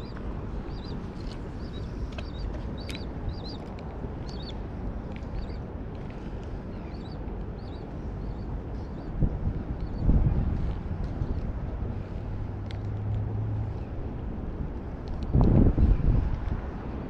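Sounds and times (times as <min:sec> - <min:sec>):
small birds chirping: 0:00.0 - 0:04.6, 0:05.2 - 0:05.6, 0:06.7 - 0:09.2, 0:09.8 - 0:10.1
wind rumble on microphone: 0:00.0 - 0:17.0.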